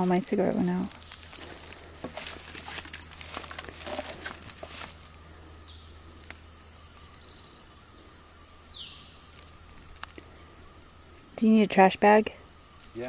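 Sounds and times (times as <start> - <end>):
paper crinkling: 0.0 - 5.2
high buzzy bird trill: 5.4 - 12.7.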